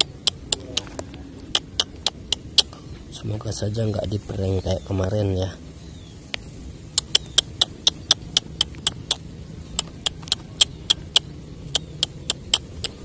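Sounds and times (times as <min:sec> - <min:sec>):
sharp high-pitched clicks: 0:00.0 - 0:02.8, 0:06.3 - 0:13.0
low steady background noise: 0:00.0 - 0:13.0.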